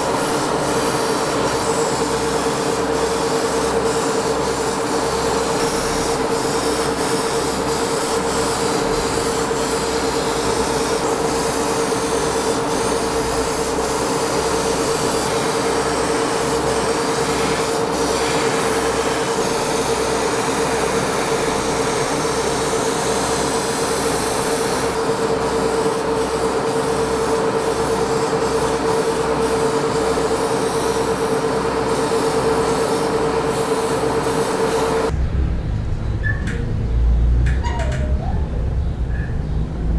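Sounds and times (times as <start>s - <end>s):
airbrush hissing: 0.0s - 31.2s
machine hum with low pulsing: 34.9s - 39.9s.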